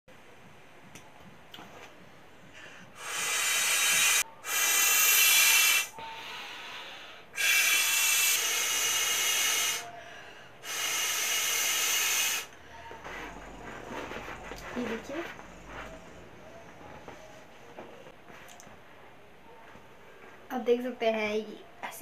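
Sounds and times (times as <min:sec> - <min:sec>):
air hissing through valve: 0:03.0 - 0:10.0, 0:10.6 - 0:12.6.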